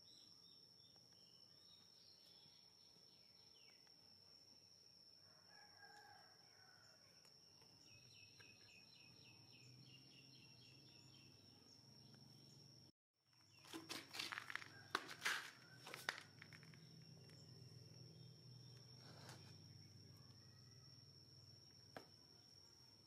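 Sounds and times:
distant rooster crowing: 0:05.2 - 0:07.2, 0:14.3 - 0:16.5.

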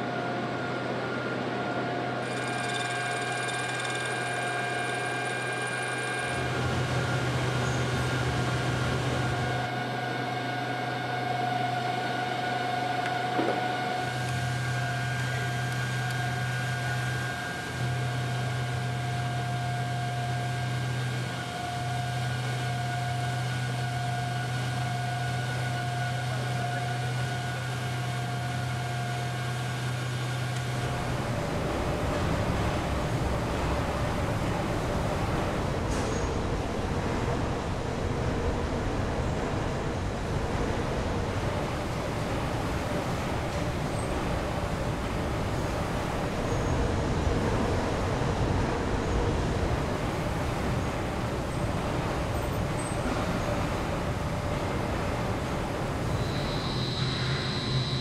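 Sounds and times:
low mechanical hum: 0:00.0 - 0:58.0
thin high whine: 0:01.1 - 0:36.4, 0:49.6 - 0:58.0.

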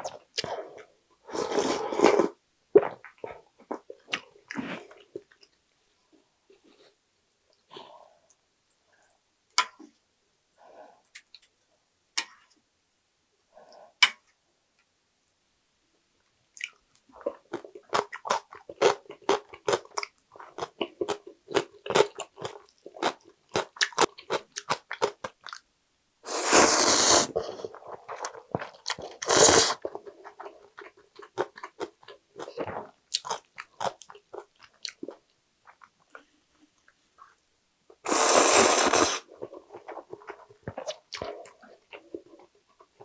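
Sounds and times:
slurping noodles: 0:26.3 - 0:28.3, 0:29.0 - 0:29.9, 0:38.0 - 0:41.5.

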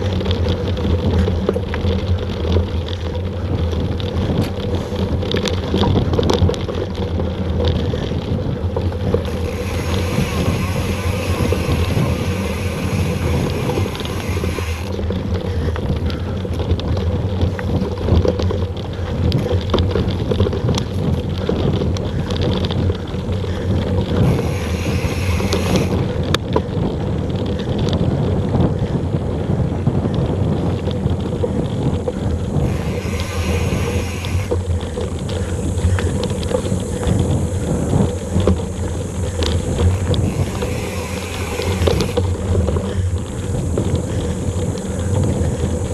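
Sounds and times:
bike rattles and knocks: 0:00.0 - 0:45.9
bike rumbling on dirt trail: 0:00.0 - 0:45.9
wind on camera microphone: 0:00.0 - 0:45.9
high buzz: 0:09.3 - 0:14.9, 0:32.6 - 0:34.6, 0:39.9 - 0:42.2.

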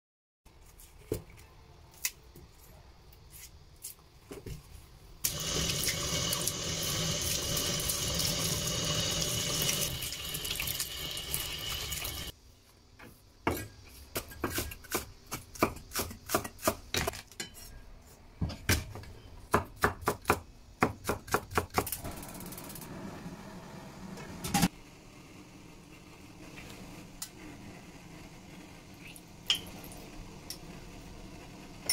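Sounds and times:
tap water running into sink: 0:05.3 - 0:12.3.

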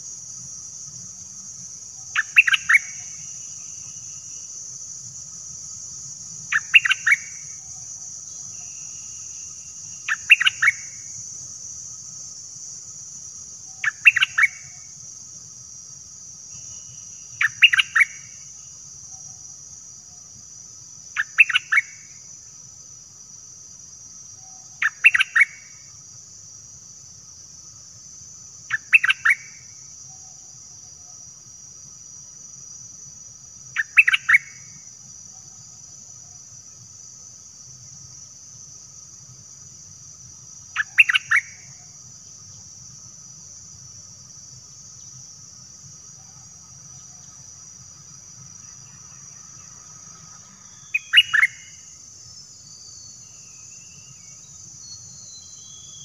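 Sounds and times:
high insect hiss: 0:00.0 - 0:56.0
bird whistled calls: 0:50.7 - 0:51.7, 0:54.8 - 0:56.0.

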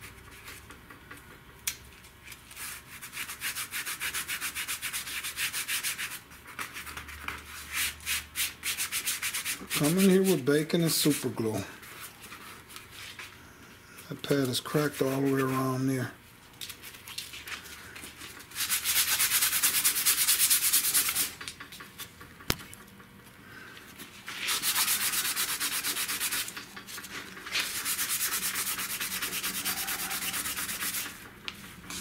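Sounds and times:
fingertip rubbing gritty hiss: 0:08.4 - 0:13.2, 0:24.3 - 0:31.2.

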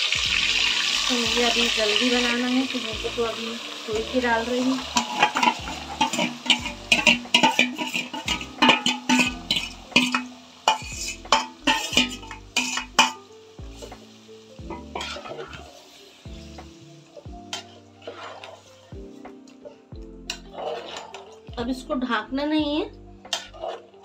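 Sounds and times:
background music with held notes: 0:00.0 - 0:24.0
oil sizzling: 0:00.0 - 0:24.0
spatula clinking against pot: 0:05.0 - 0:13.3, 0:14.7 - 0:15.7.

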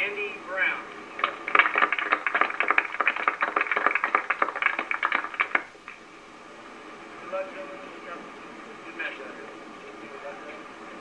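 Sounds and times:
small crowd applauding: 0:01.2 - 0:06.0.

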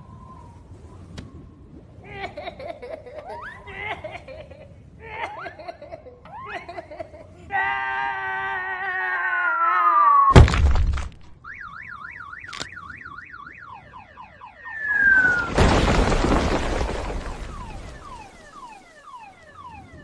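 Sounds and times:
cartoon crash: 0:10.3 - 0:11.1, 0:14.8 - 0:18.7
warbling alarm-like tone: 0:11.5 - 0:15.6, 0:16.8 - 0:20.0
cartoon falling whistle: 0:14.7 - 0:18.9.

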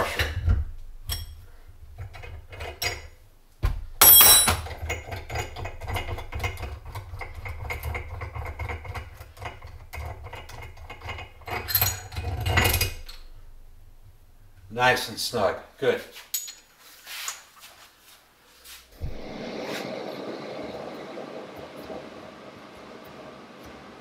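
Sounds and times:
sharp metallic clank: 0:04.0 - 0:04.6
metal tools clinking: 0:04.0 - 0:06.0, 0:16.2 - 0:16.8.

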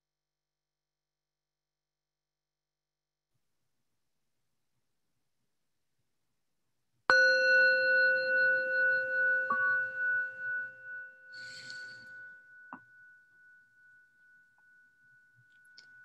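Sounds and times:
singing bowl ringing: 0:07.1 - 0:16.0.

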